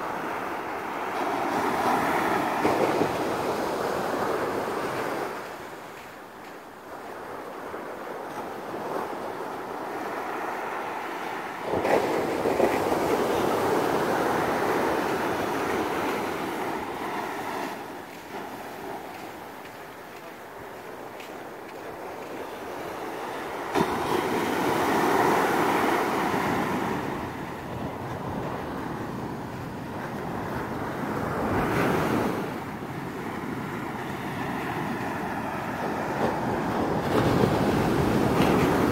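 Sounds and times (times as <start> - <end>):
wave breaking and washing up beach: 0.0 - 38.9
wind on microphone: 11.2 - 38.9.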